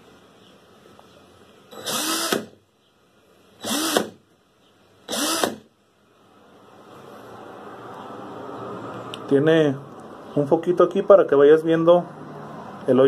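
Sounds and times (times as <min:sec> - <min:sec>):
cordless drill motor whining: 0:01.7 - 0:02.6, 0:03.6 - 0:04.2, 0:05.1 - 0:05.7.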